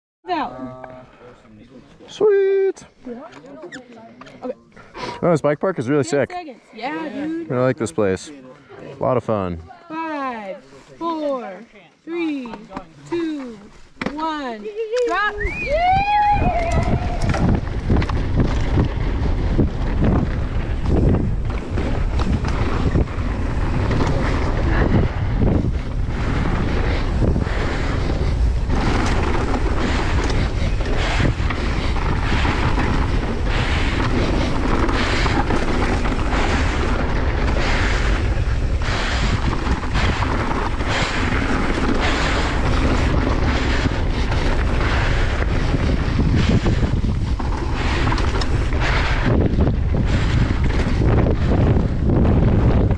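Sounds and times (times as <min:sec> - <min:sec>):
wind rushing over microphone: 0:15.0 - 0:52.9.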